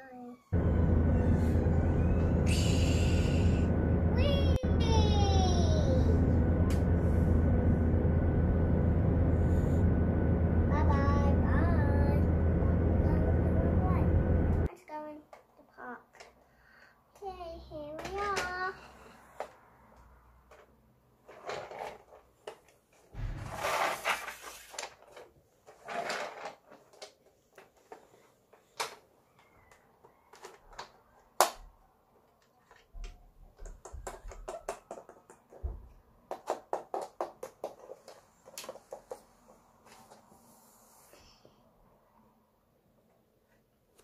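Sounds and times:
plastic toys clicking and knocking: 15.3s - 16.4s, 17.9s - 18.6s, 20.4s - 23.1s, 24.8s - 39.3s
rustling scrape: 23.2s - 26.9s.

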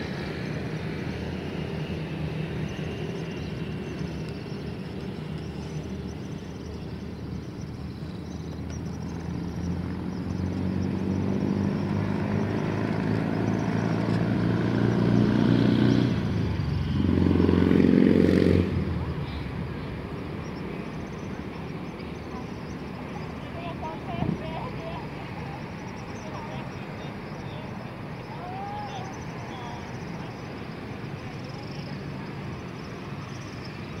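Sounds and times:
vehicle engines running: 0.0s - 34.0s.

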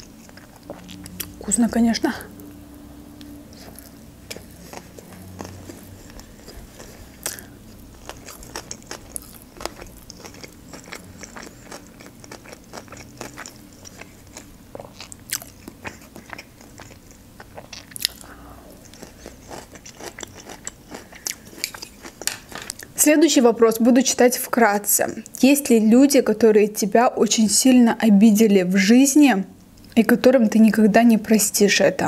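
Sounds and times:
chewing with wet crunches: 0.0s - 1.4s, 3.5s - 23.0s.

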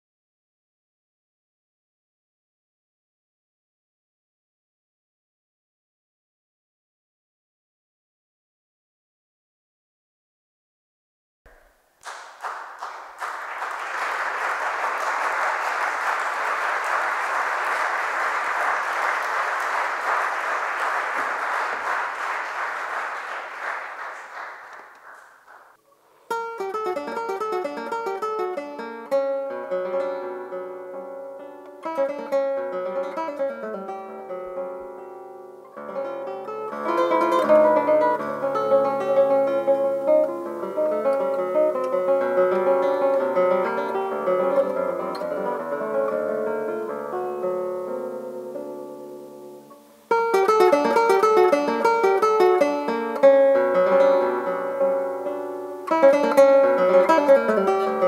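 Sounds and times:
audience applauding: 12.0s - 25.8s, 50.2s - 52.9s
solo classical guitar: 25.9s - 58.0s.

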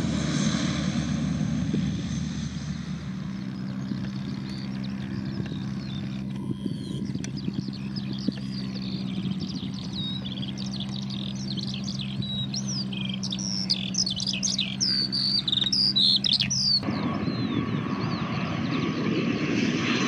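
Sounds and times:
turboprop plane taking off: 0.0s - 20.0s
birds chirping: 2.0s - 20.0s.

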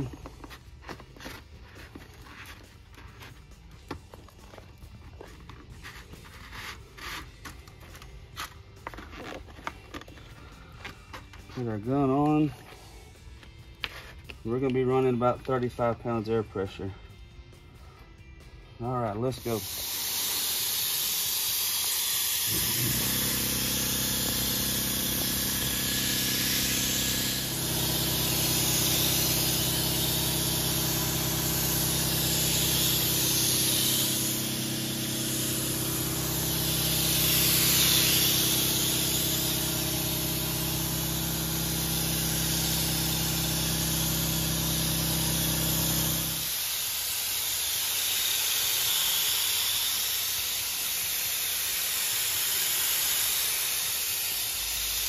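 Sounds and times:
spray gun hissing: 19.4s - 55.0s.

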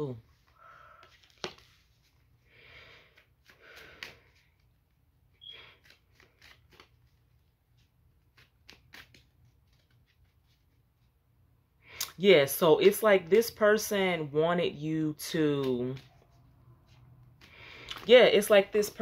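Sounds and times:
cards sliding swishes: 5.6s - 10.8s.

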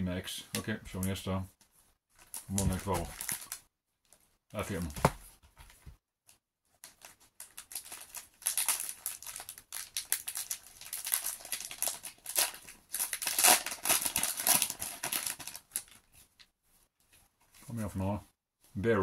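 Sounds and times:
foil wrapper crinkling: 6.8s - 16.1s.

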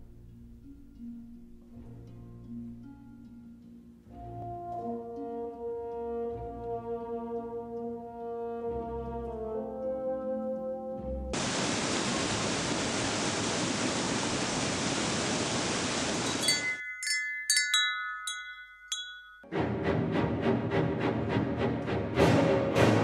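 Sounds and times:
waterfall rushing: 11.4s - 16.8s
wind chime ringing: 16.3s - 19.5s.

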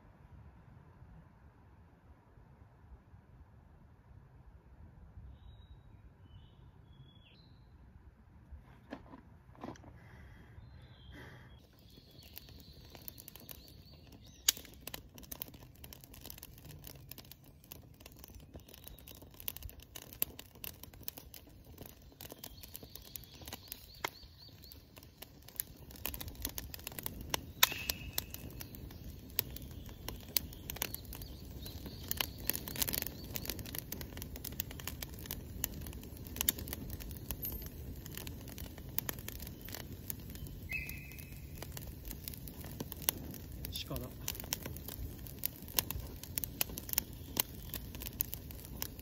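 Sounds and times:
low rush of flame: 9.8s - 49.0s
campfire crackling and popping: 10.9s - 49.0s.

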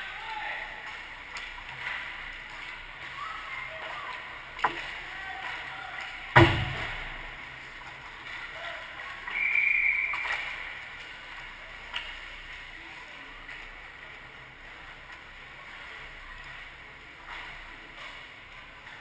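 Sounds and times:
loud knock: 6.4s - 7.1s.

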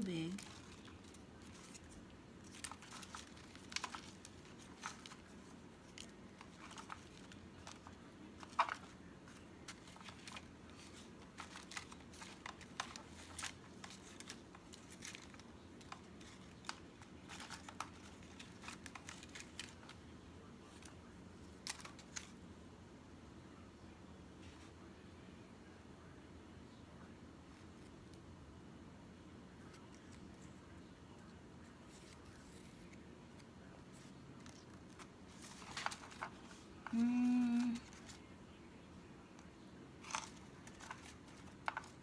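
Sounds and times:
paper crinkling and rustling: 0.0s - 22.4s, 29.6s - 38.4s, 40.0s - 42.0s.

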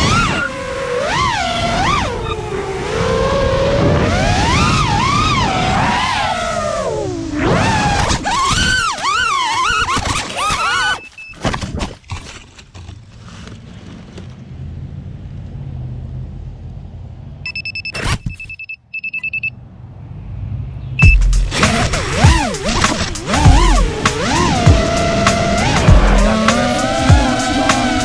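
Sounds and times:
drone motors whining: 0.0s - 11.2s, 21.0s - 28.0s
rapid electronic beeps: 17.5s - 19.6s, 21.0s - 22.6s.

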